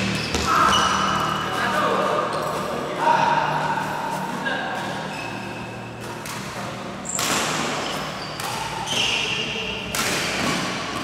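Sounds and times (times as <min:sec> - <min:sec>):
shoe squeaks: 0:00.0 - 0:01.5, 0:04.8 - 0:06.1, 0:07.0 - 0:09.7
low hum of hall: 0:00.0 - 0:11.0.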